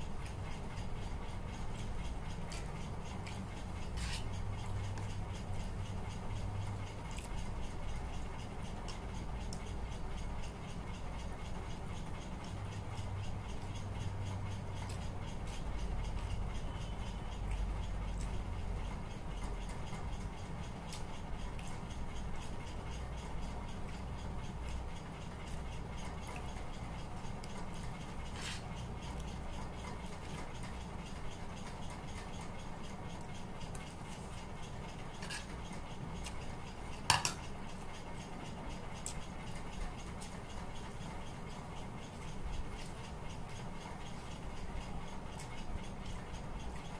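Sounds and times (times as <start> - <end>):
low steady hum: 0.0 - 46.9
spoon scraping and clinking bowl: 35.2 - 35.5.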